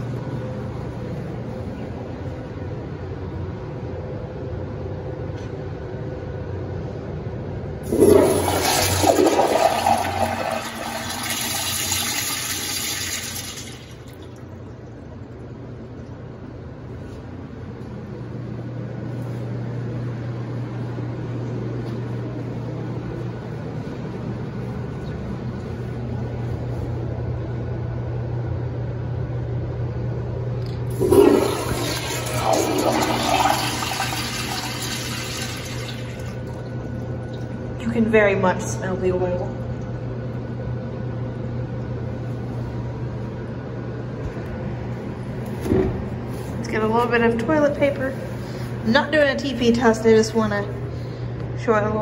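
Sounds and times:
steady low hum: 0.0s - 52.0s
toilet flushing: 7.8s - 14.6s, 30.9s - 37.6s.

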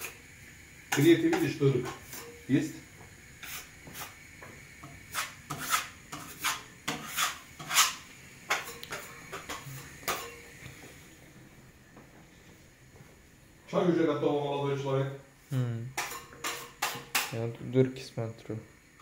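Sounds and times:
scraping and rubbing strokes: 3.4s - 4.2s, 5.0s - 10.4s.

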